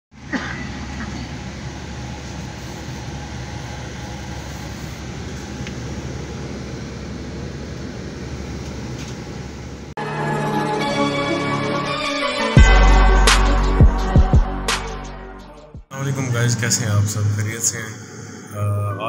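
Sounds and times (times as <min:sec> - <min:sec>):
bus engine drone: 0:00.1 - 0:10.0, 0:15.9 - 0:19.0
air-conditioning hiss: 0:00.2 - 0:10.0, 0:15.9 - 0:19.0
intro music: 0:10.0 - 0:17.6.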